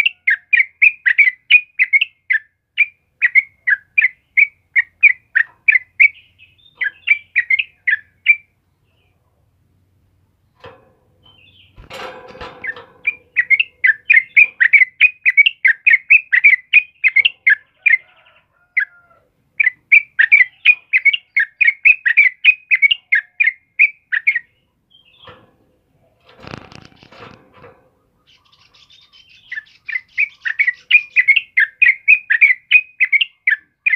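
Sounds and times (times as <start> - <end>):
bird singing bubbling notes: 12.6 - 17.3
bird wings rustling: 26.3 - 27.8.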